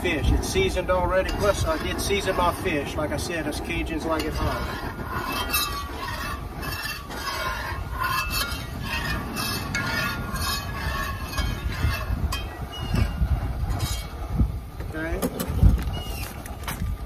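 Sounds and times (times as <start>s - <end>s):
steady low rumble: 0.0s - 17.0s.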